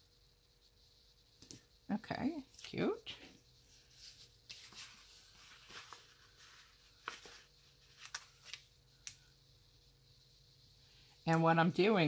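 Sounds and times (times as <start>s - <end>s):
paper rustling and crinkling: 3.8s - 8.7s.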